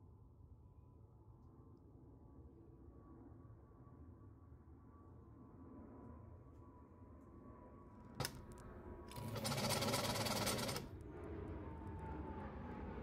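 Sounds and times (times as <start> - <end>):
sewing machine click: 8.2 - 8.4, 9.1 - 10.9
sewing machine motor hum: 8.2 - 8.4, 9.1 - 10.9
sewing machine clattering: 9.1 - 10.9.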